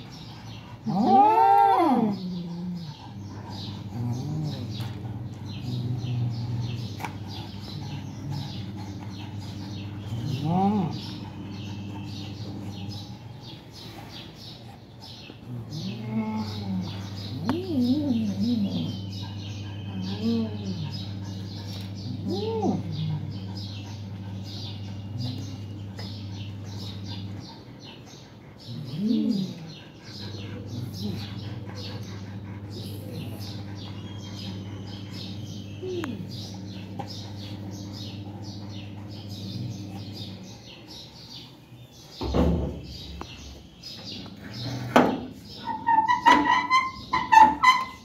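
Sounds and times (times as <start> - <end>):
small birds chirping: 0.0 - 48.0.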